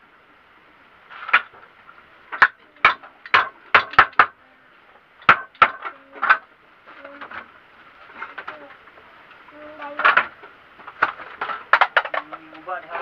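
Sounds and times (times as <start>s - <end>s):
hammer striking wooden frame: 2.4s - 4.4s, 5.2s - 6.4s.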